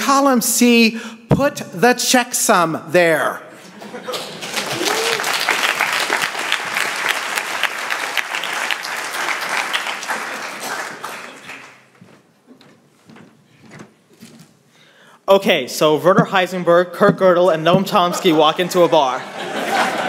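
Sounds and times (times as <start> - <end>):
audience applause: 4.0 - 12.0.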